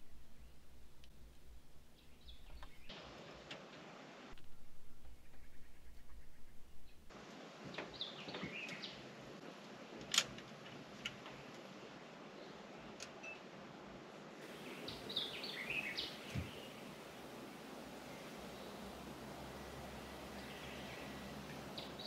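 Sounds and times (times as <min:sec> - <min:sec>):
songbird chirping: 0:00.0 - 0:03.2, 0:04.3 - 0:09.2, 0:14.4 - 0:22.0
steady low hiss: 0:00.0 - 0:22.0.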